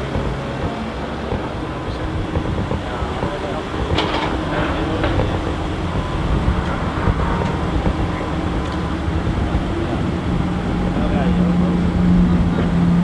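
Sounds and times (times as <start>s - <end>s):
sports cars idling: 0.0s - 13.0s.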